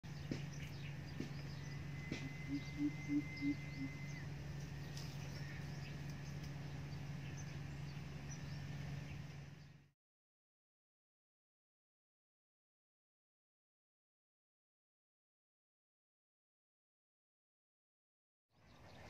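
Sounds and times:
steady low hum: 0:00.0 - 0:10.0
faint high chirps: 0:01.5 - 0:06.5
bird giving deep hoots: 0:01.8 - 0:04.3.

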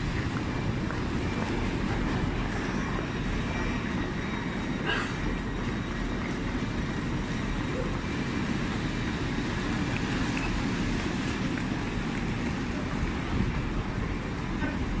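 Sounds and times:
railway station rumble: 0:00.0 - 0:15.0.

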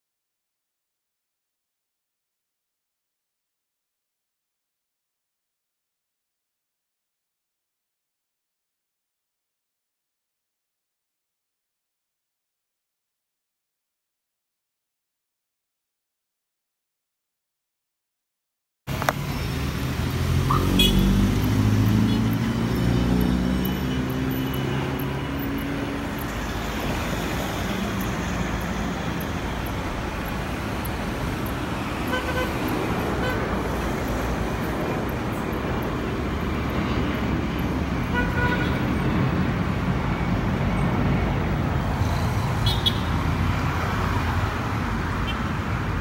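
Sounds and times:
street traffic: 0:18.9 - 0:46.0
airliner roaring overhead: 0:19.5 - 0:45.2.

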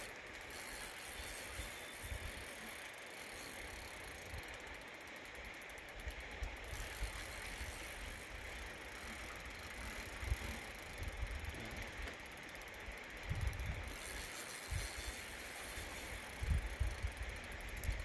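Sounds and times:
fishing reel ticking and whirring: 0:00.0 - 0:18.0
wind buffeting microphone: 0:13.2 - 0:14.0.

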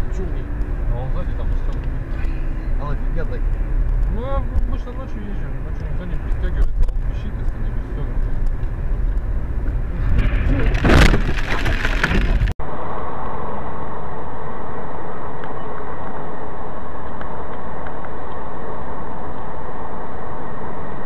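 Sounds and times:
road and wind rumble: 0:00.0 - 0:21.0
road noise hiss: 0:00.0 - 0:21.0.

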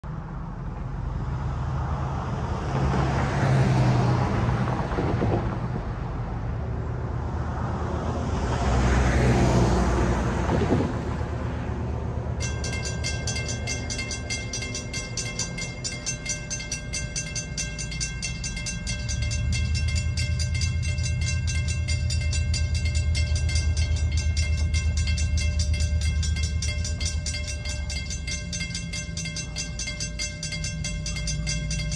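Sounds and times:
vehicles passing: 0:00.0 - 0:31.9
low rumble: 0:12.1 - 0:31.9
railroad crossing bells ringing: 0:12.2 - 0:31.9.

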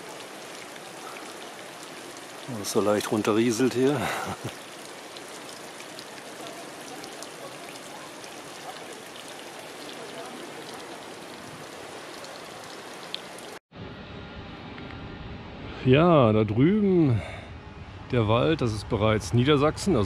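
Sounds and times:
water trickling and dripping: 0:00.0 - 0:13.6.

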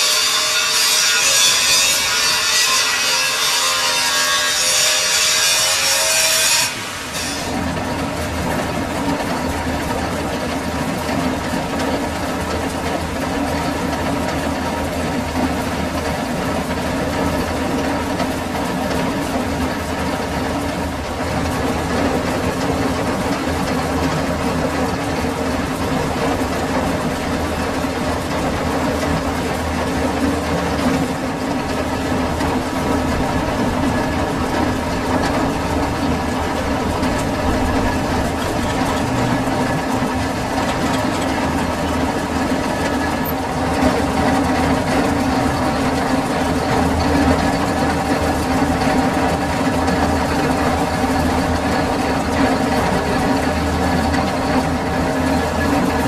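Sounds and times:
metal lathe humming: 0:21.1 - 0:51.6.

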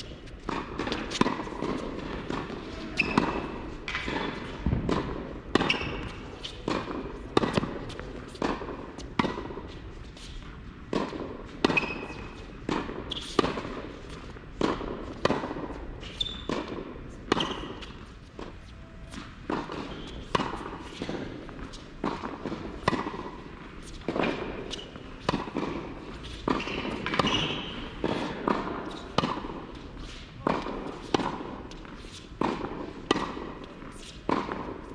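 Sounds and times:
tennis balls bouncing on court: 0:00.0 - 0:34.9
tennis balls struck by racquet: 0:00.0 - 0:34.9.

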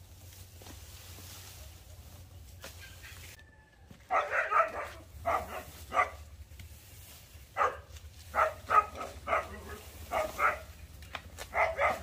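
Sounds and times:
dog barking: 0:04.1 - 0:06.3, 0:07.6 - 0:10.7, 0:11.4 - 0:12.0.

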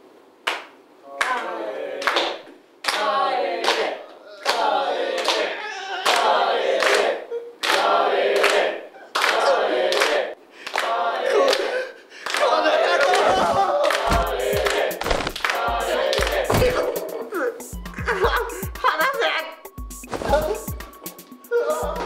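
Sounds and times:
people clapping: 0:00.4 - 0:16.8
group chanting in unison: 0:01.3 - 0:17.7.

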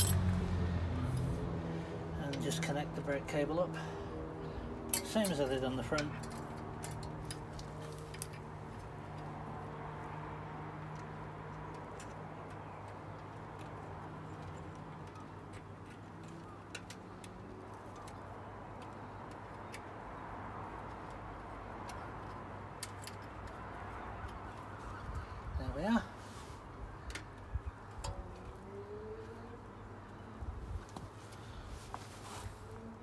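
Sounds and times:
small metallic clicks: 0:10.9 - 0:20.2, 0:20.8 - 0:24.8.

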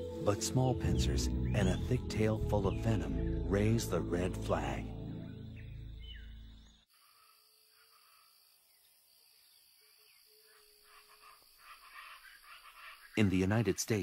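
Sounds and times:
insects trilling: 0:00.3 - 0:14.0
irregular insect chirps: 0:02.8 - 0:13.6.

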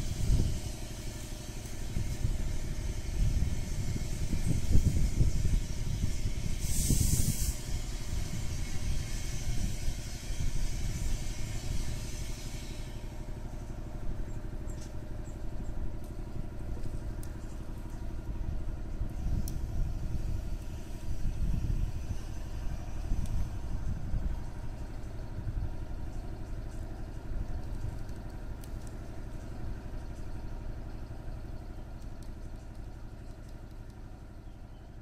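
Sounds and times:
burst of hiss: 0:00.0 - 0:13.2
low background rumble: 0:00.0 - 0:35.0.

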